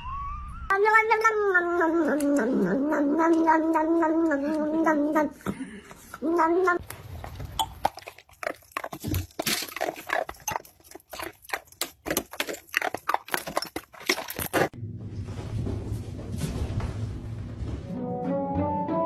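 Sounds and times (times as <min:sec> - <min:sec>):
dog crunching icicles: 0:06.8 - 0:14.8.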